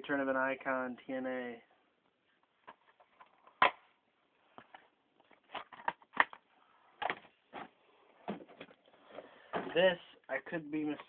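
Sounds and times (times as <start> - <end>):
plastic cases clicking and knocking: 4.6 - 7.7.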